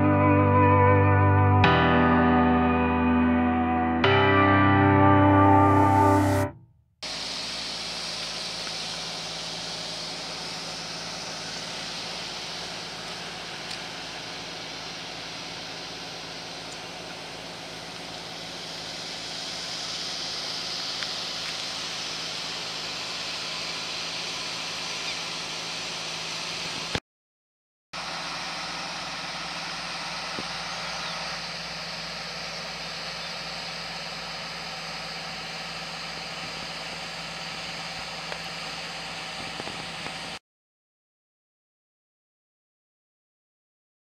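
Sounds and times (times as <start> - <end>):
diesel truck idling: 7.0 - 26.9, 28.0 - 40.3.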